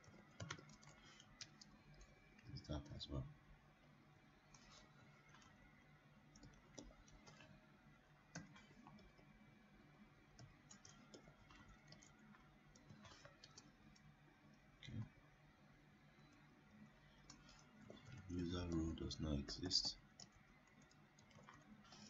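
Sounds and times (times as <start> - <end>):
keyboard keystrokes and clicks: 0.0 - 3.0, 6.3 - 7.6, 8.3 - 9.3, 10.3 - 14.1, 16.2 - 22.0.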